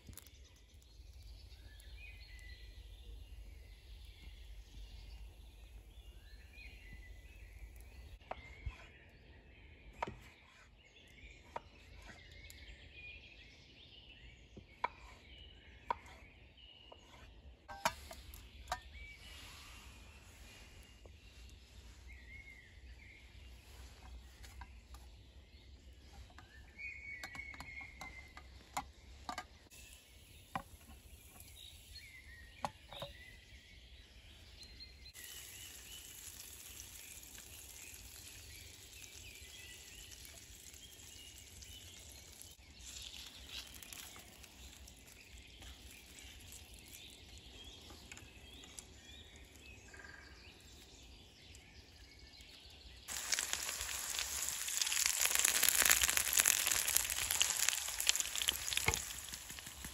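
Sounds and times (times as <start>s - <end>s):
slices frying hiss: 35.2s - 47.0s, 53.1s - 59.9s.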